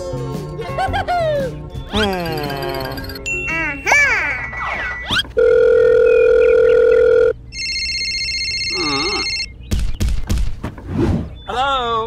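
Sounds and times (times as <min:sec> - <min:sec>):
phone ringing with high trill: 0:04.4 - 0:09.6
steady phone tone: 0:04.9 - 0:09.6.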